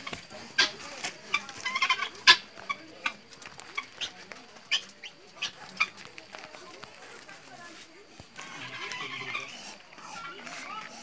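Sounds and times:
guinea fowl calling: 0:00.0 - 0:03.2, 0:03.8 - 0:06.0, 0:08.4 - 0:11.0.

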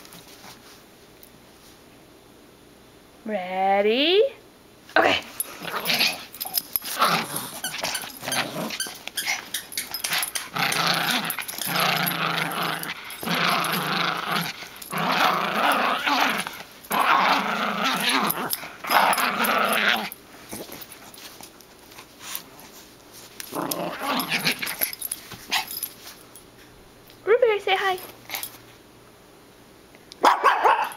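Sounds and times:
small dog growling: 0:05.0 - 0:20.8, 0:23.5 - 0:24.9.

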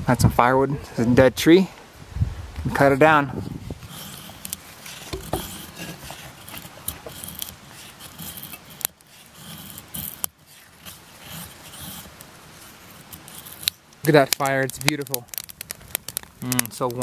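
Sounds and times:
wood scraping strokes: 0:02.8 - 0:17.0
wood cracking and snapping: 0:12.9 - 0:17.0.

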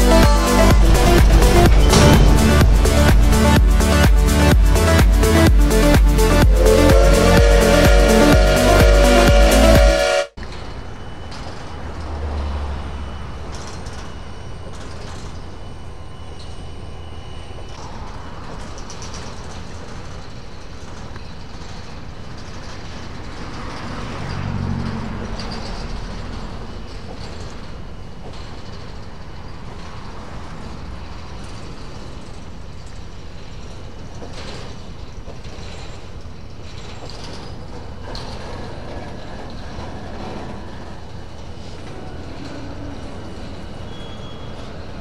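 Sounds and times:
low hum: 0:00.0 - 0:12.1
freight train rumbling: 0:00.0 - 0:45.0
metallic knocks: 0:00.3 - 0:07.4.

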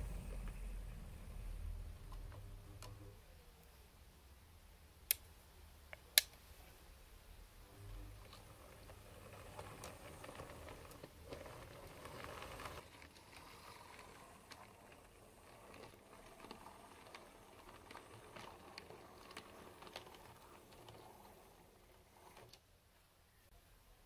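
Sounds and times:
wheels clicking over rail joints: 0:08.2 - 0:22.6.

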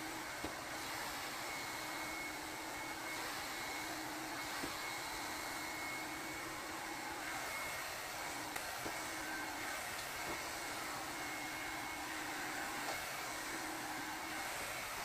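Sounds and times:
hair dryer running: 0:00.0 - 0:15.0.

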